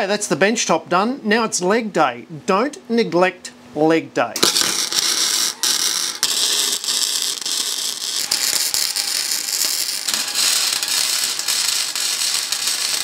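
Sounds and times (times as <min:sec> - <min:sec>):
welding arc crackling: 0:04.4 - 0:13.0.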